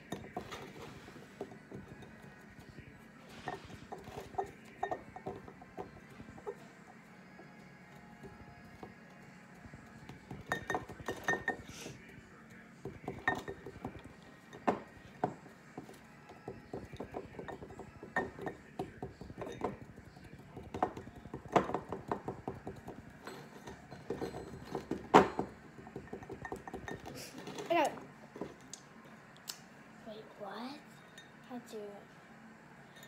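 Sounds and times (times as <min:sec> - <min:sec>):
cork tapping inside a glass: 0:10.1 - 0:11.7, 0:12.9 - 0:15.4, 0:16.5 - 0:23.0.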